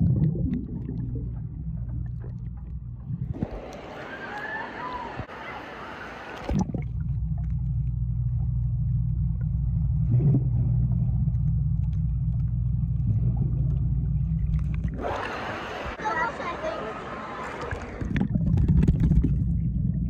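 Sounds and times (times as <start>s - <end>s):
muffled underwater rumble: 0.0s - 16.0s, 17.3s - 20.0s
pool splashing: 3.2s - 7.3s, 12.2s - 19.3s.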